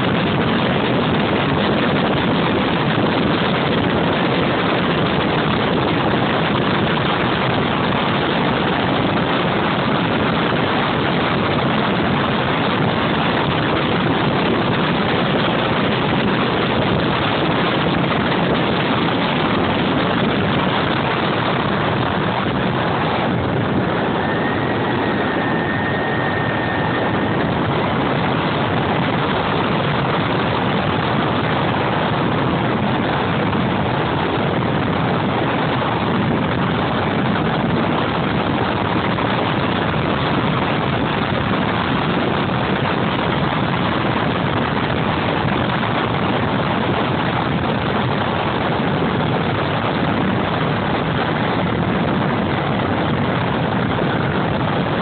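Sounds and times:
model jet turbine engine: 0:00.0 - 0:55.0
airflow noise: 0:19.2 - 0:37.8.

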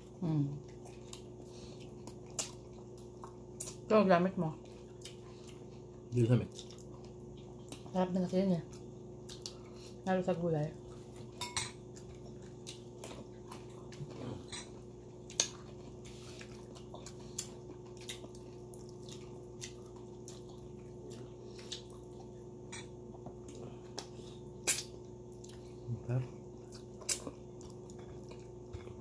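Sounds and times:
steady low hum: 0:00.0 - 0:29.0
wet mouth chewing sounds: 0:00.6 - 0:03.9, 0:04.6 - 0:08.0, 0:08.7 - 0:10.0, 0:11.9 - 0:25.9, 0:26.5 - 0:29.0.

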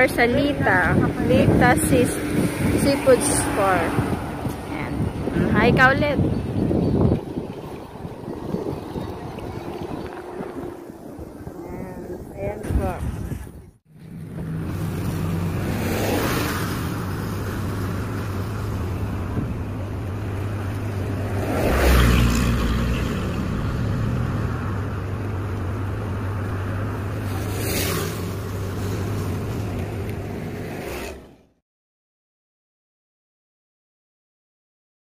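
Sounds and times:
vehicles passing by: 0:00.0 - 0:31.6.

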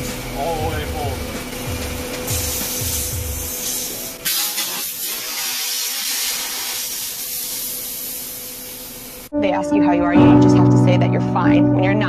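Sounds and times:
refrigerant can spraying hiss: 0:02.2 - 0:09.3.

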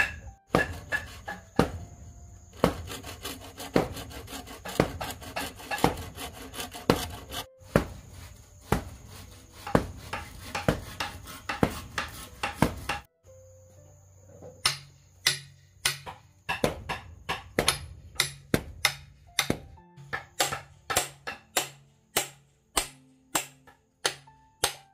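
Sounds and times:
saw rasping through bamboo: 0:00.0 - 0:01.8, 0:02.5 - 0:13.1
hammer knocking blade into bamboo: 0:00.0 - 0:01.9, 0:03.6 - 0:08.0, 0:09.6 - 0:13.1, 0:14.6 - 0:24.9.

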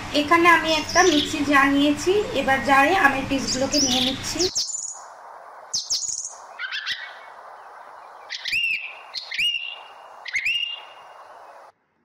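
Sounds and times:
steady background hiss: 0:00.0 - 0:11.8
birds whistling calls: 0:00.6 - 0:01.6, 0:03.4 - 0:11.7.

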